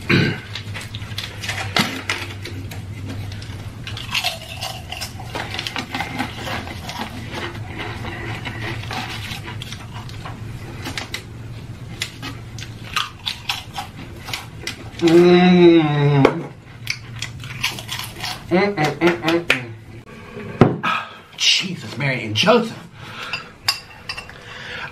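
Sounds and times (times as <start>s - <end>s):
steady low hum: 0.0s - 24.9s
chewing and crunching chips: 0.4s - 11.3s, 11.9s - 15.8s, 16.7s - 19.0s.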